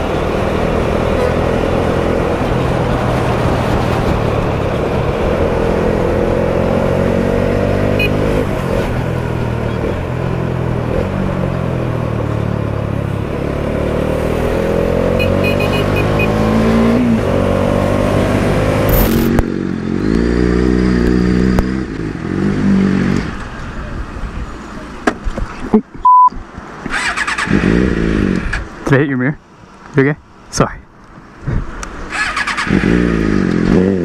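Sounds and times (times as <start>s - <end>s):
motorcycle engine revving: 0.0s - 11.8s, 13.0s - 23.3s, 26.9s - 28.7s, 32.1s - 34.0s
motorcycle engine accelerating: 0.0s - 23.3s, 26.9s - 28.7s, 32.1s - 34.0s
censor bleep: 26.0s - 26.4s.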